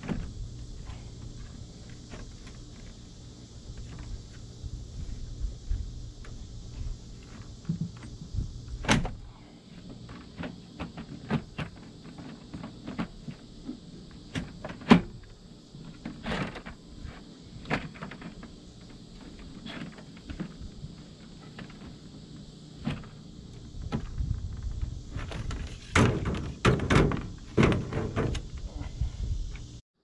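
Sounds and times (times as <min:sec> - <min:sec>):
plastic shroud knocking and scraping: 0:23.8 - 0:28.5.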